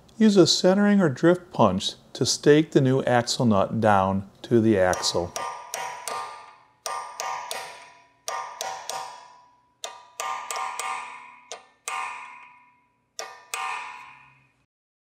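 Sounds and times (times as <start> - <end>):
hammer striking metal punch: 4.8 - 14.6.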